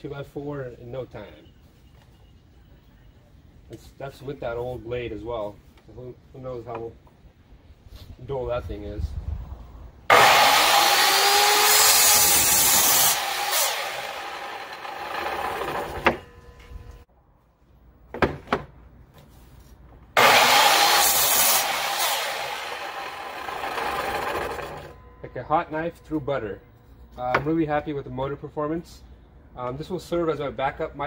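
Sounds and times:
saw knock: 10.1 - 16.7
saw blade cutting wood: 10.1 - 16.8, 20.2 - 25.0
miter saw whine: 10.1 - 17.0, 20.2 - 26.9.

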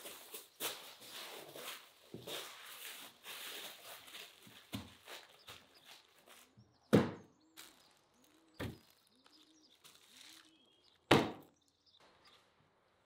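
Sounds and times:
foil crinkling: 0.0 - 6.5, 7.6 - 11.1
faint bird chirps: 5.0 - 13.0.

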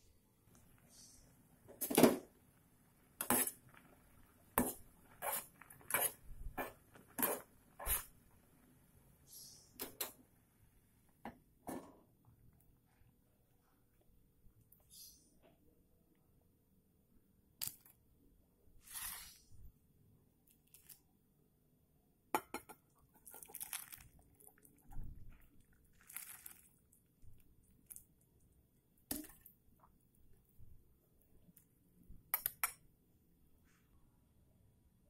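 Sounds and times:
noodles and broth splashing: 23.0 - 29.8.

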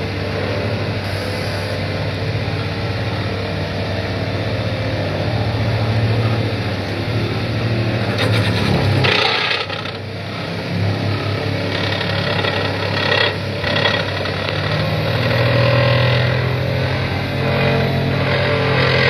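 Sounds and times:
diesel engine under load: 0.0 - 19.0
vibratory pile driver shaking: 8.1 - 10.0, 11.7 - 15.7.

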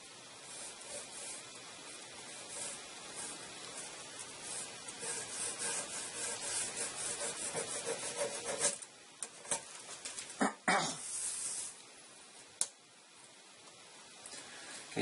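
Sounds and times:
pencil scratching on wood: 0.4 - 8.8.

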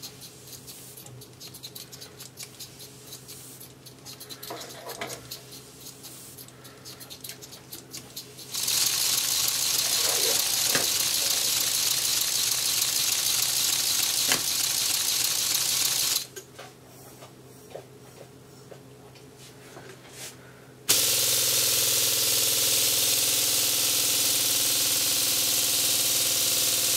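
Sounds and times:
compressed air hissing: 2.5 - 16.2, 20.9 - 26.9.

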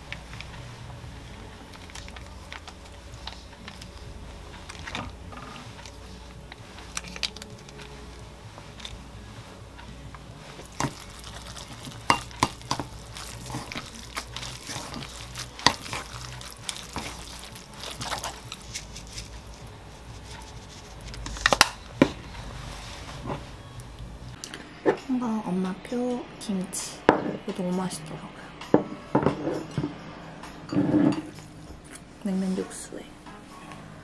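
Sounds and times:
noodles squishing: 0.0 - 24.4.

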